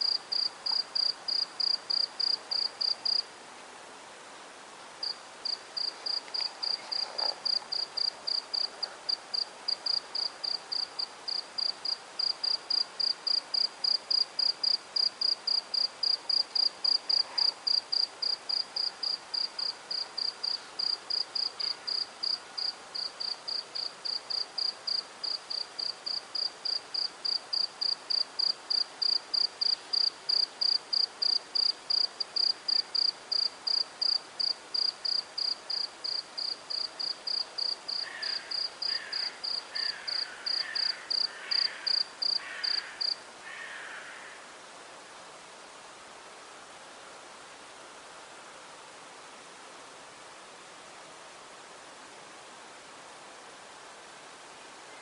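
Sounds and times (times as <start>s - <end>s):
cricket chirping: 0.0s - 3.3s, 5.0s - 44.2s.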